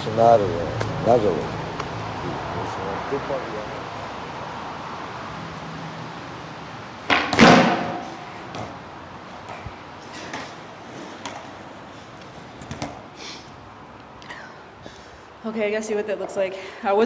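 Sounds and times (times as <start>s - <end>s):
skateboard wheels rolling on concrete: 0.0s - 16.5s
skateboard clattering on pavement: 7.0s - 13.1s
light knocks of skateboard: 7.1s - 13.1s.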